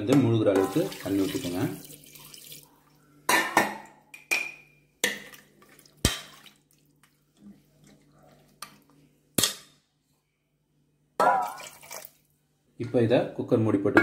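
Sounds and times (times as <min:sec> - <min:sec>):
water splashing: 0:00.6 - 0:02.7, 0:05.1 - 0:07.1.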